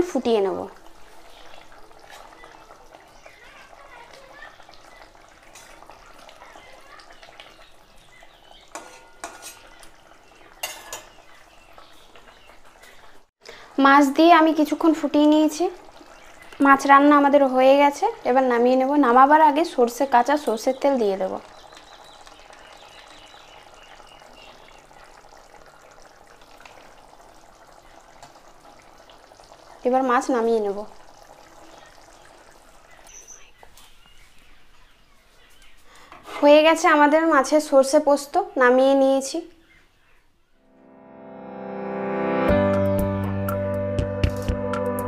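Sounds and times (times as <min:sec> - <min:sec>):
curry bubbling: 0:00.0 - 0:34.5
spatula clinking against pan: 0:08.7 - 0:09.7
metal spatula scraping pan: 0:08.7 - 0:09.8.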